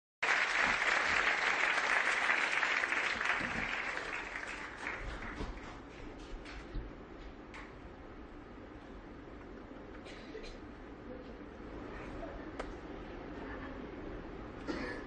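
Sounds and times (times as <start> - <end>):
audience applauding: 0.2 - 6.6.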